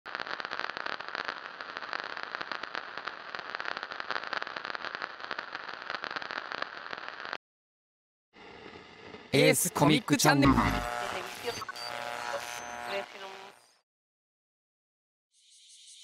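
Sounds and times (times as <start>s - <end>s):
old film crackling and hiss: 0.1s - 7.4s, 8.4s - 13.6s.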